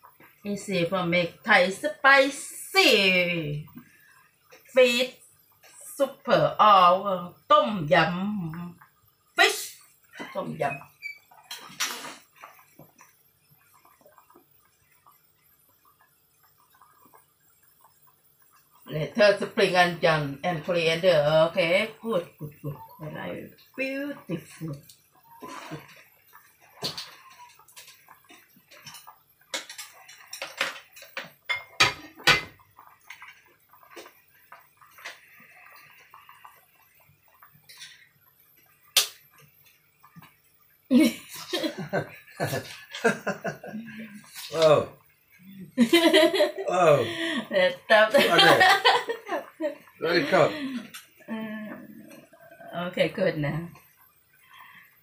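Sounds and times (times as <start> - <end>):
broth boiling and bubbling: 0.0 - 55.0
short loud hiss: 11.7 - 12.3.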